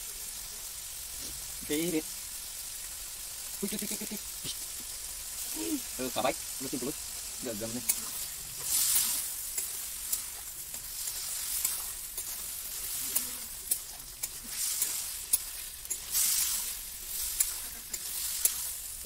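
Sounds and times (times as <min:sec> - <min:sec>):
food sizzling in a wok: 0:00.0 - 0:19.0
spatula clicking on pan: 0:07.8 - 0:08.2, 0:08.9 - 0:16.4, 0:17.1 - 0:18.8.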